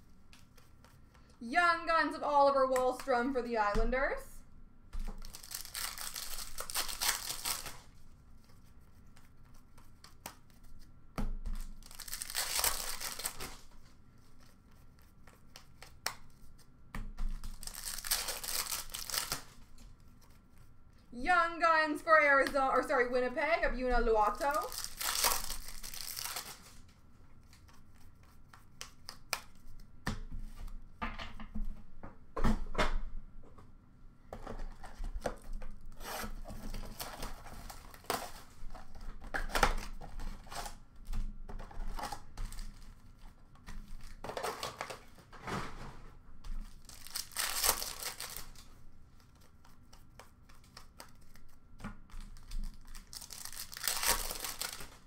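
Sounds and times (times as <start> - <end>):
wrapper ripping: 5.2 - 7.9, 11.7 - 13.7, 17.4 - 19.6, 24.3 - 26.8, 46.7 - 48.7, 52.4 - 55.0
card wrappers crinkling: 5.2 - 8.0, 11.6 - 13.8, 17.4 - 19.8, 24.2 - 26.8, 46.6 - 51.6, 52.2 - 55.0.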